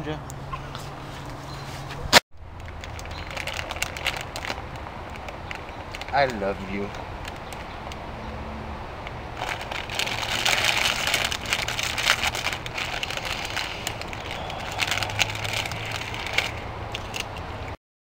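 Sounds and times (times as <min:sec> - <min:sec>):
plastic chip bag crinkling: 0:02.6 - 0:07.8, 0:09.4 - 0:17.4.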